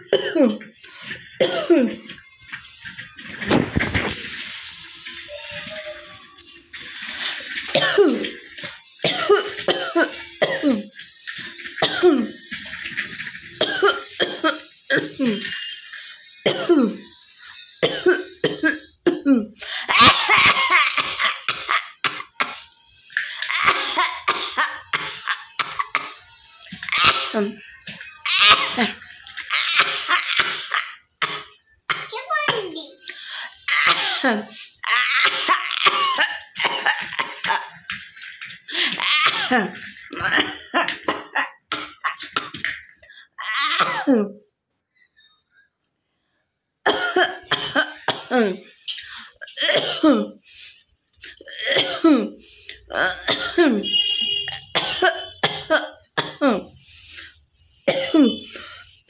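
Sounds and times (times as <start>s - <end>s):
woman coughing: 0.0s - 0.7s, 1.4s - 2.0s, 7.7s - 8.3s, 9.0s - 10.9s, 16.4s - 17.0s, 17.8s - 22.6s, 33.7s - 37.8s, 39.0s - 42.6s, 43.4s - 44.4s, 46.8s - 50.4s, 51.4s - 56.8s, 57.9s - 58.7s.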